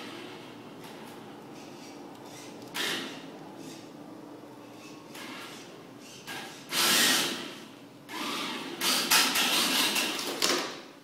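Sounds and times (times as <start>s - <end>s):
toy car tyres sliding on floor: 4.7s - 10.5s.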